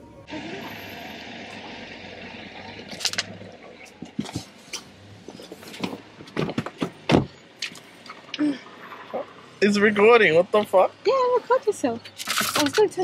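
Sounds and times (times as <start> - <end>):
knocks and rustles: 3.9 - 8.3
loud thump: 6.2 - 7.4.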